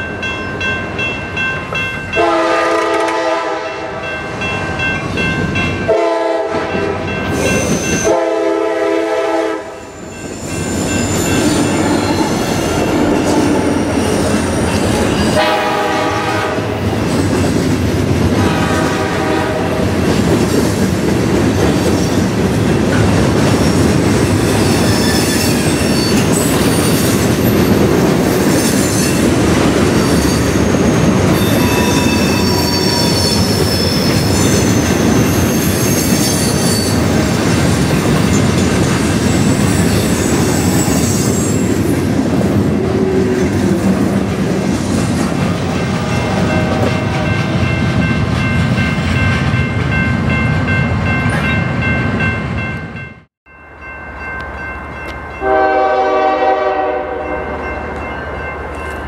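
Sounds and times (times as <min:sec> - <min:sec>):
railroad crossing bell ringing: 0:00.0 - 0:16.9, 0:24.4 - 0:41.8, 0:45.7 - 0:59.0
train horn blasts: 0:02.2 - 0:04.2, 0:05.8 - 0:07.3, 0:08.0 - 0:09.9, 0:15.3 - 0:16.8, 0:18.4 - 0:19.8, 0:55.4 - 0:58.0
train wheels squealing: 0:07.3 - 0:08.2, 0:09.8 - 0:15.4, 0:23.5 - 0:37.2, 0:38.3 - 0:42.0.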